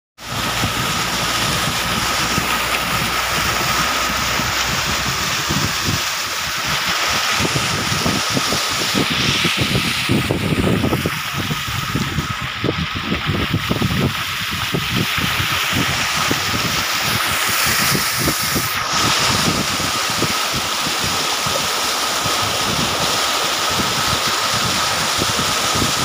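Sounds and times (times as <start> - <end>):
moving vehicle rushing noise: 0.2 - 12.8
wind buffeting microphone: 0.2 - 26.0.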